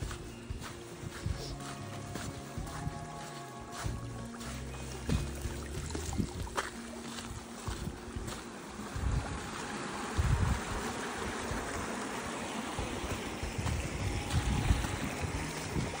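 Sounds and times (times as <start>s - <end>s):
wind buffeting microphone: 5.0s - 16.0s.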